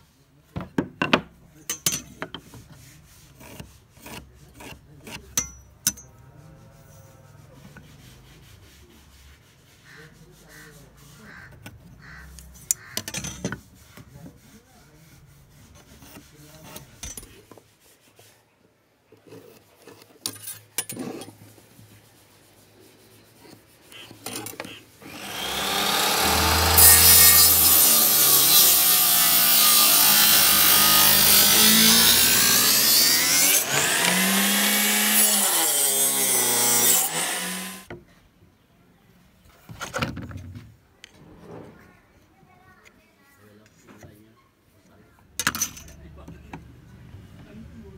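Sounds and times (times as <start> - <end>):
table saw cutting wood: 25.0 - 37.9.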